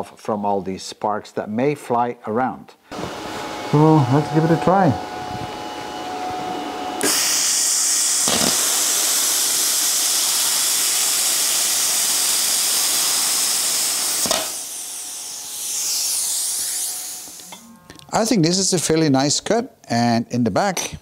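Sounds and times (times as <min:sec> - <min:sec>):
plasma cutter hissing: 0:07.0 - 0:17.6.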